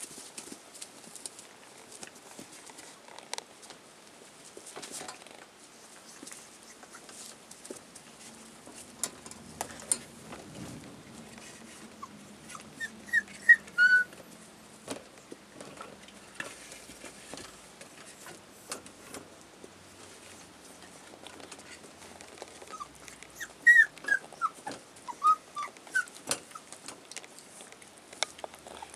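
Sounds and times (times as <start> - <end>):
puppies whimpering and yipping: 11.7 - 14.2, 22.6 - 26.8.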